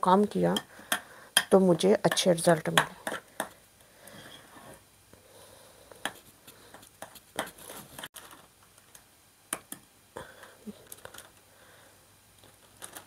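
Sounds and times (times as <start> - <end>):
spoon tapping and scraping bowl: 2.1 - 3.5
plastic being handled: 7.1 - 9.0, 10.7 - 11.4, 12.4 - 13.0.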